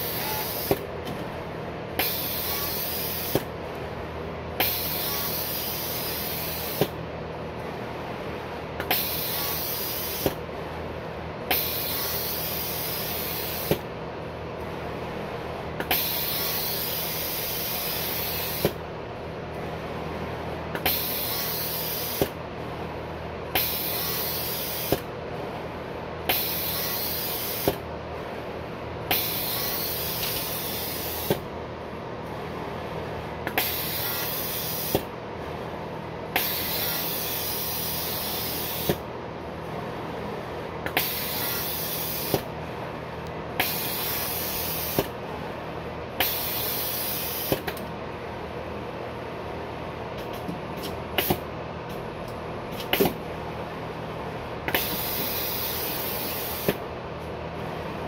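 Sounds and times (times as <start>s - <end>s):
air hissing: 0.0s - 0.8s, 2.0s - 3.5s, 4.6s - 7.0s, 8.8s - 10.4s, 11.5s - 13.9s, 15.8s - 18.8s, 20.8s - 22.4s, 23.5s - 25.1s, 26.3s - 27.8s, 29.1s - 31.4s, 33.5s - 35.1s, 36.3s - 39.0s, 40.9s - 42.5s, 43.6s - 45.1s, 46.2s - 47.7s, 54.7s - 56.8s
low machine hum: 0.0s - 58.0s.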